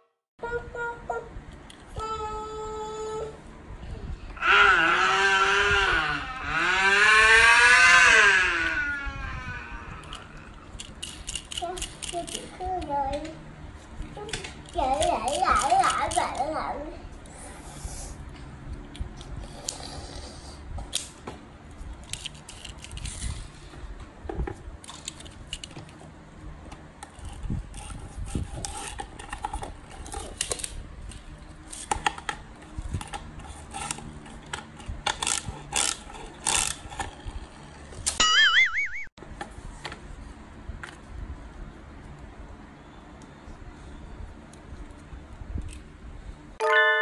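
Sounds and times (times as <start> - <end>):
wavering electronic tone: 38.2 - 39.1, 46.6 - 47.0.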